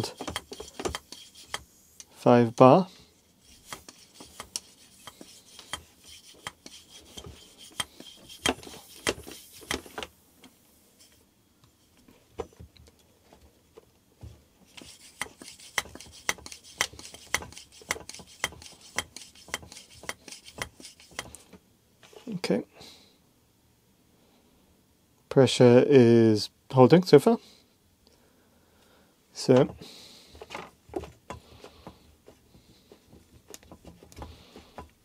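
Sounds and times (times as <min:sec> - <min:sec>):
hand pump clicking and scraping: 0:00.0 - 0:01.7, 0:03.4 - 0:10.0, 0:14.7 - 0:21.4, 0:30.4 - 0:35.0.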